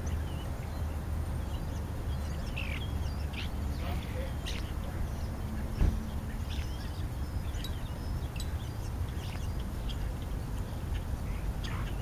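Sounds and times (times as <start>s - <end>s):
starlings chirping and whistling: 0.0s - 12.0s
single thump: 5.8s - 6.0s.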